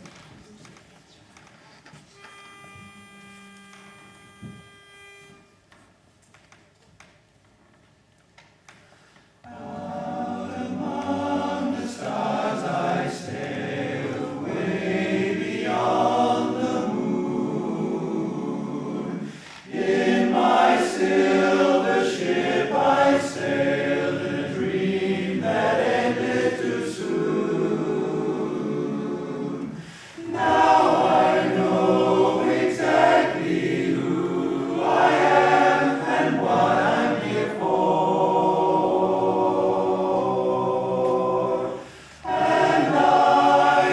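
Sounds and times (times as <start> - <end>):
men's chorus singing a cappella: 9.5 - 43.9.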